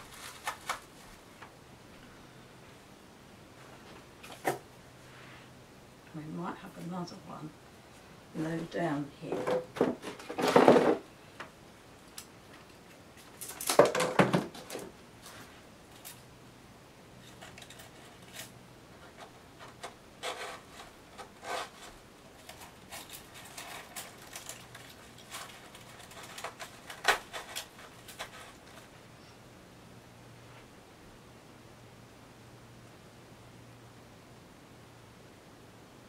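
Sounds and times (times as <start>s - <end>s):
dried seedheads rustling: 0.0s - 1.5s, 17.2s - 29.2s.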